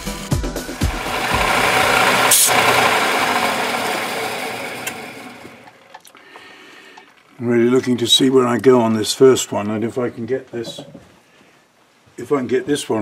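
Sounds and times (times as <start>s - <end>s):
metal lathe running: 0.8s - 5.9s.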